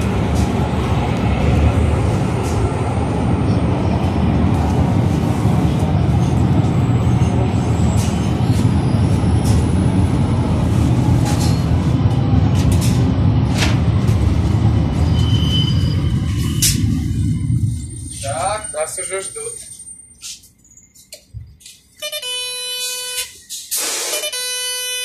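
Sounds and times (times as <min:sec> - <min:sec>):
train rumbling: 0:00.0 - 0:22.0
brake squeals: 0:05.5 - 0:10.2, 0:14.9 - 0:24.8.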